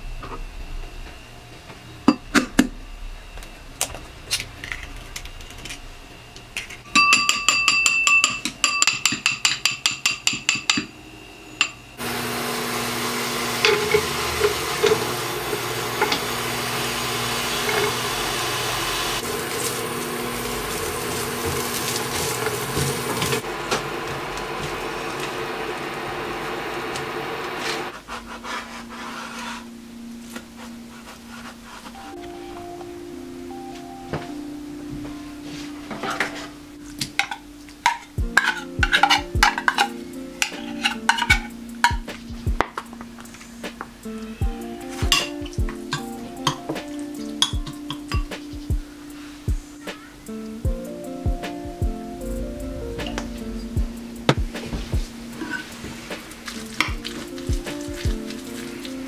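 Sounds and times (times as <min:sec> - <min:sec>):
ringing clinks in a bowl: 0:06.9 - 0:10.9
vegetables sizzling in oil: 0:12.0 - 0:27.9, 0:55.1 - 0:59.0.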